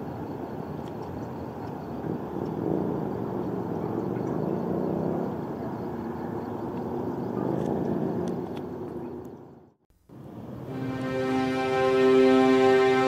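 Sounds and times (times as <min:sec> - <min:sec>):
distant engines rumbling: 0:00.0 - 0:13.0
faint high ticks: 0:00.8 - 0:01.8, 0:02.4 - 0:02.6, 0:06.7 - 0:06.9.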